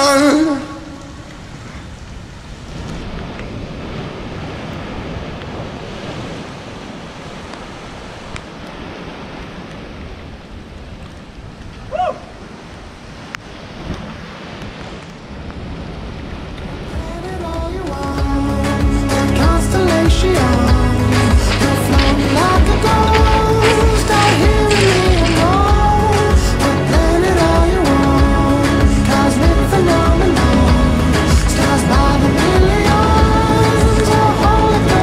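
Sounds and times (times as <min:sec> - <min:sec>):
wind: 0:00.0 - 0:35.0
surf breaking on rocks: 0:12.4 - 0:35.0.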